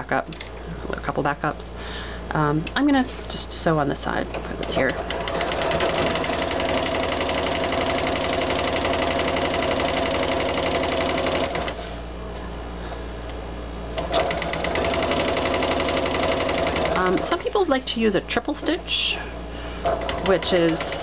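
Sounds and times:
sewing machine stitching: 4.4 - 11.8, 14.0 - 17.4, 19.8 - 21.0.

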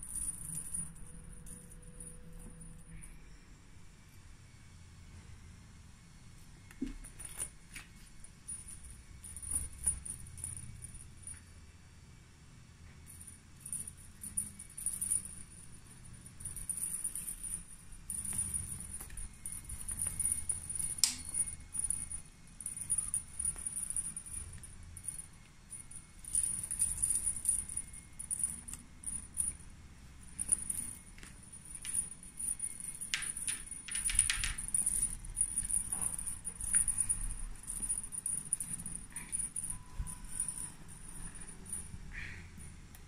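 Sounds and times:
faint high-pitched whine: 0.0 - 43.0
kitten rustling and clicking: 6.7 - 11.4, 13.0 - 43.0.

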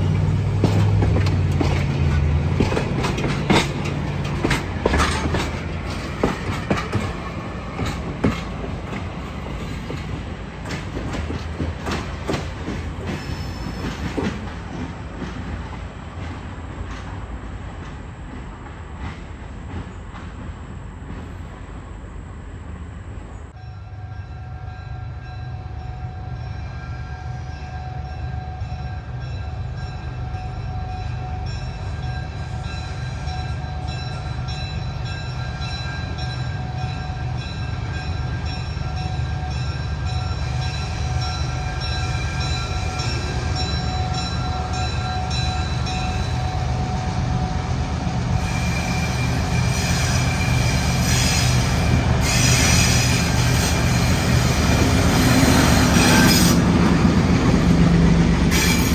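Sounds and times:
diesel locomotive engine rumbling: 0.0 - 58.9
train wheel and rail noise: 0.0 - 58.9.

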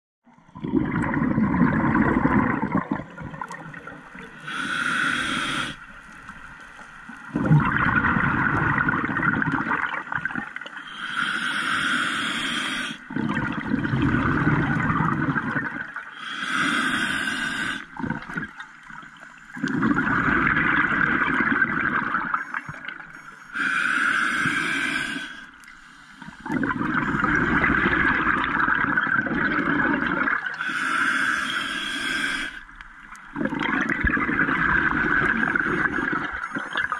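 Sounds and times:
exhaled bubbles rushing: 0.5 - 4.4, 7.3 - 10.7, 13.1 - 16.0, 17.9 - 23.0, 26.2 - 30.6, 33.0 - 36.9
hissing regulator inhale: 4.4 - 5.9, 10.8 - 13.1, 16.1 - 18.0, 22.3 - 28.0, 30.5 - 32.8, 35.2 - 36.9.

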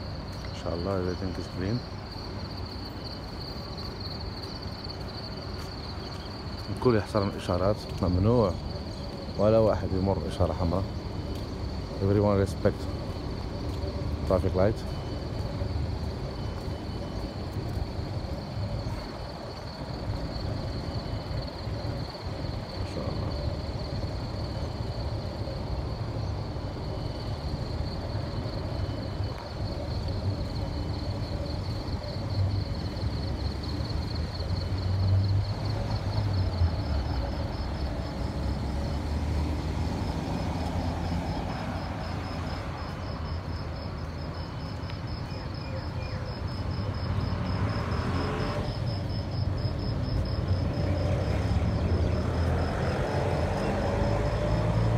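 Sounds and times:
high-pitched insect trill: 0.0 - 54.9
low traffic rumble: 0.0 - 54.9.

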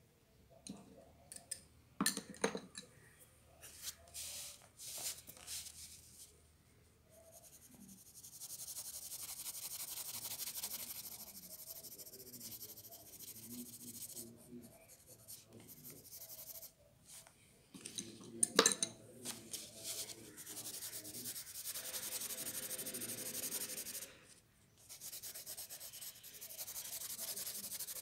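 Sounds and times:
pencil scratching on paper: 7.2 - 16.7, 19.6 - 24.1, 24.8 - 28.0.

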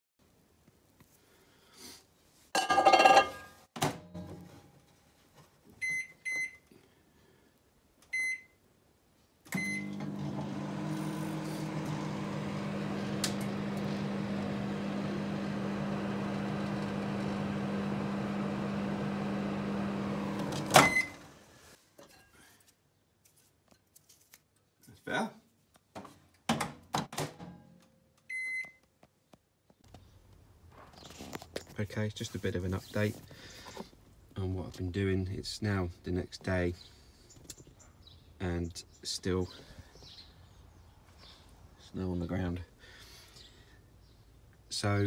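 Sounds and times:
microwave oven humming: 9.5 - 21.5
microwave door shutting: 9.6 - 21.3
keypad beeps: 28.3 - 28.8.

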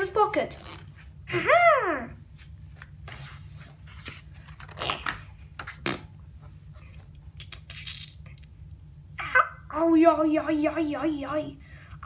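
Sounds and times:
book pages rustling: 3.7 - 6.0.

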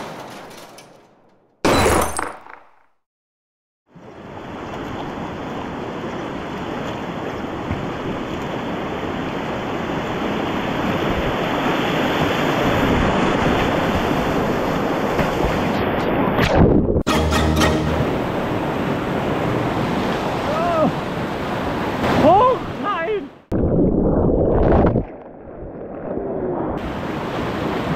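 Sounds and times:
wind rumble on microphone: 4.2 - 17.0.

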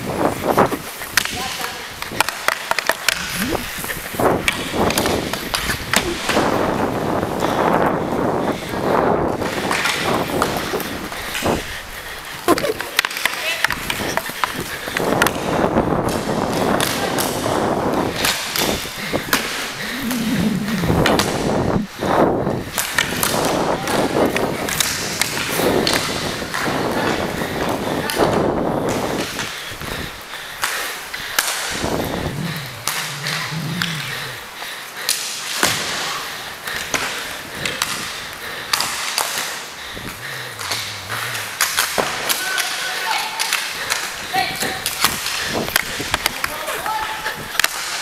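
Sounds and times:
inline skate wheels rolling: 0.0 - 48.0
sticks and puck clacking: 0.2 - 7.9, 9.3 - 21.7, 22.5 - 29.7, 30.6 - 48.0
hockey sticks knocking puck: 0.9 - 6.6, 9.4 - 11.5, 12.6 - 19.7, 22.7 - 29.6
steady rushing noise: 3.1 - 12.4, 17.3 - 22.8, 25.6 - 35.5, 37.4 - 42.9.

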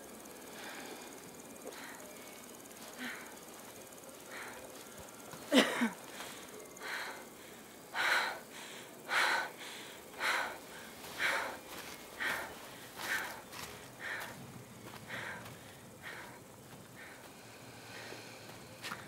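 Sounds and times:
person breathing hard: 0.3 - 19.0
person gasping: 15.0 - 16.4.

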